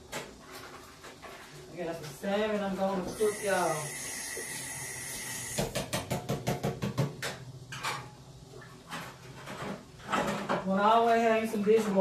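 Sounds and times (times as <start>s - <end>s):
steady hiss: 0.0s - 5.8s.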